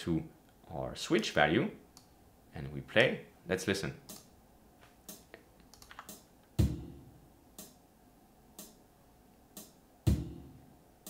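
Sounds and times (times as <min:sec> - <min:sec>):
hi-hat ticks: 0:04.0 - 0:04.3, 0:05.0 - 0:07.8, 0:08.5 - 0:08.8, 0:09.5 - 0:10.6
bass drum thump: 0:06.6 - 0:07.1, 0:10.1 - 0:10.6.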